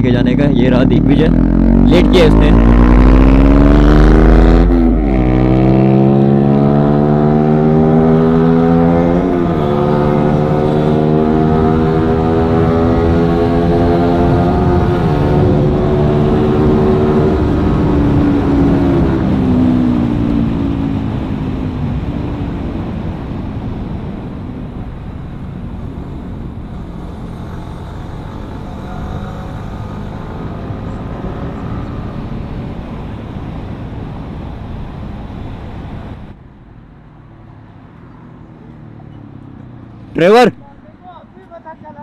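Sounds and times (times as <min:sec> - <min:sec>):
motorcycle engine: 0:00.0 - 0:22.7, 0:23.7 - 0:33.6.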